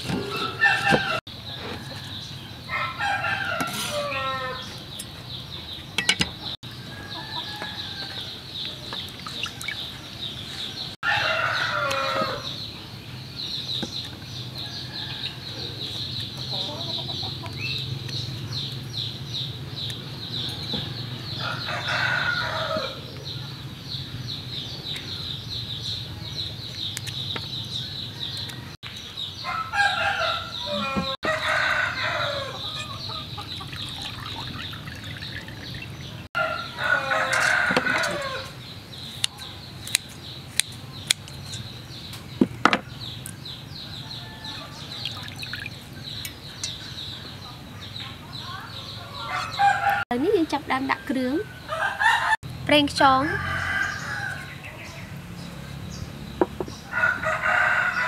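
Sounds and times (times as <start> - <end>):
roosters crowing: 0.0 - 4.9, 6.6 - 8.6, 10.2 - 12.7, 14.5 - 17.5, 20.3 - 23.6, 27.8 - 38.7, 42.9 - 47.9, 48.6 - 50.1, 51.2 - 52.4, 53.0 - 58.0.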